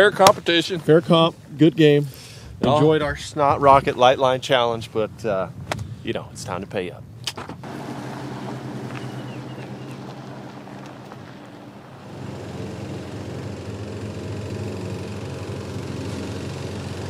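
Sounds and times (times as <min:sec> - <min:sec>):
pickup truck driving away: 0:07.6 - 0:17.0
push mower engine running: 0:07.6 - 0:17.0.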